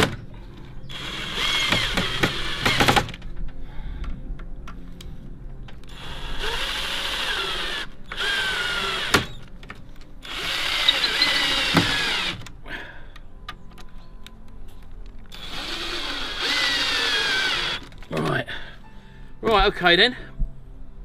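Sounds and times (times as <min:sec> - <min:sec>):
drill driving screws: 0:01.0 - 0:03.1, 0:05.9 - 0:09.4, 0:10.2 - 0:12.4, 0:15.3 - 0:17.9.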